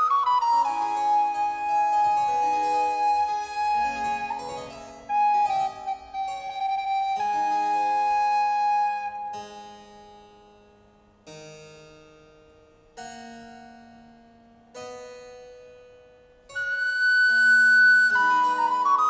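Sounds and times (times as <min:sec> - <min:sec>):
recorder playing: 0:00.0 - 0:09.3, 0:16.6 - 0:19.0.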